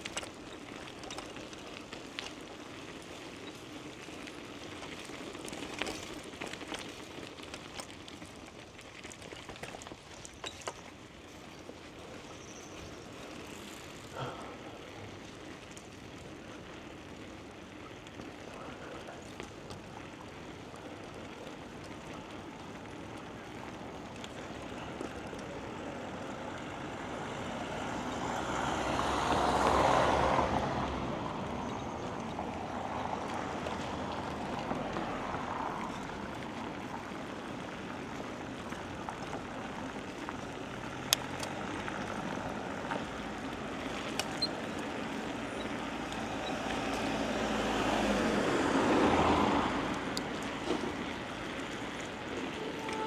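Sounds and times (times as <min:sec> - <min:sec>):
bicycle tyre noise: 0:00.0 - 0:53.0
motor vehicle passing: 0:11.5 - 0:53.0.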